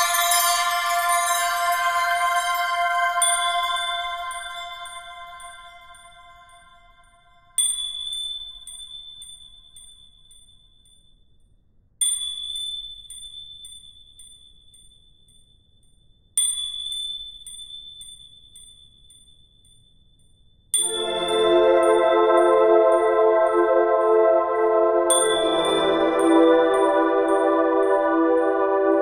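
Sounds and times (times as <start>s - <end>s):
held chord: 0.0s - 6.5s, 20.8s - 29.0s
high chime-like note: 0.0s - 7.0s, 20.8s - 29.0s.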